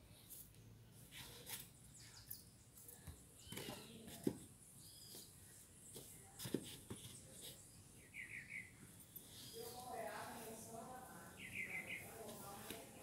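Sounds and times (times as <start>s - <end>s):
faint bird chirps: 1.2s - 4.1s, 4.8s - 6.3s, 7.0s - 9.9s, 11.3s - 12.1s.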